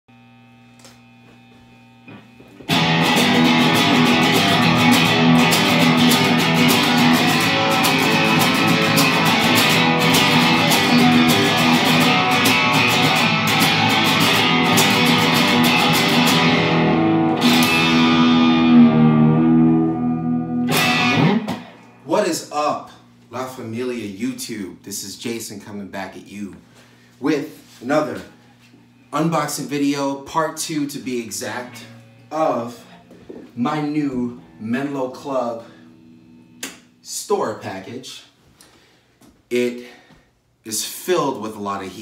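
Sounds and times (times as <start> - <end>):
distorted electric guitar riff: 0.8 - 22.6, 30.6 - 37.1
low steady hum: 21.3 - 38.4.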